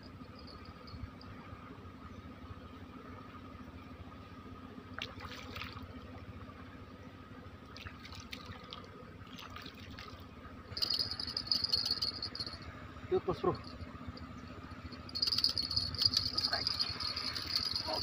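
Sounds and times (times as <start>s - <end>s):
water splashing and dripping: 7.8s - 10.2s
insect trilling: 10.7s - 18.0s.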